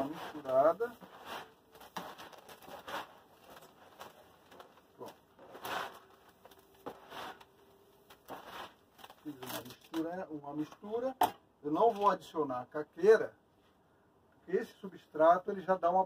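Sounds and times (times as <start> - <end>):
hands mixing gritty soil: 0.0 - 7.5.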